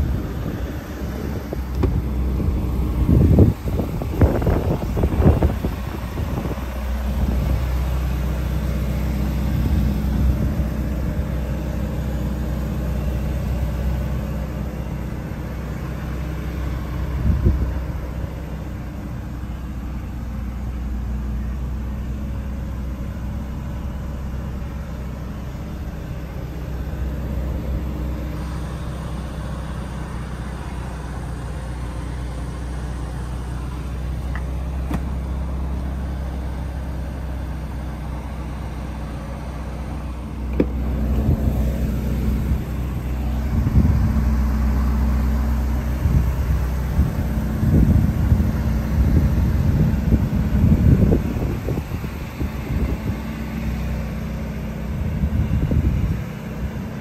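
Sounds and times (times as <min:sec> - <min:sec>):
car engine idling: 0:00.0 - 0:57.0
brief thump: 0:01.8 - 0:02.0, 0:34.4 - 0:35.2, 0:40.5 - 0:40.8.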